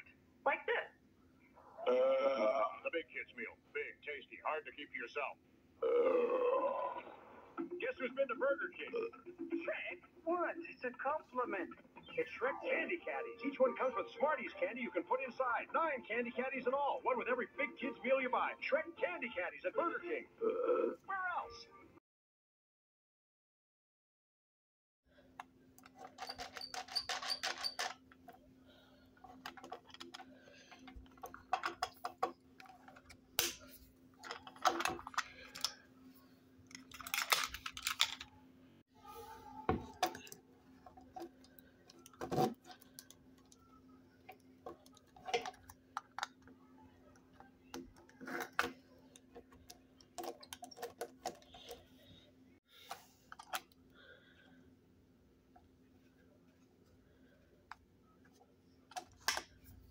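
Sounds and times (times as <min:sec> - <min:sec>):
plastic toys clicking and rattling: 0:25.8 - 0:28.3, 0:29.2 - 0:33.6, 0:34.2 - 0:35.8, 0:36.6 - 0:38.3, 0:39.8 - 0:43.6, 0:44.2 - 0:51.9.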